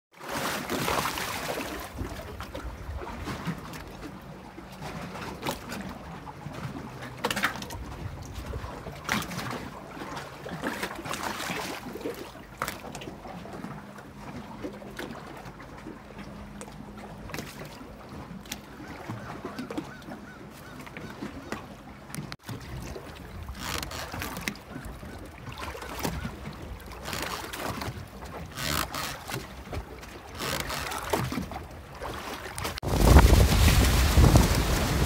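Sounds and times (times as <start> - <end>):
waves lapping against boat hull: 0.1 - 35.0
sharp water splashes: 0.2 - 3.8, 8.4 - 13.6, 20.6 - 35.0.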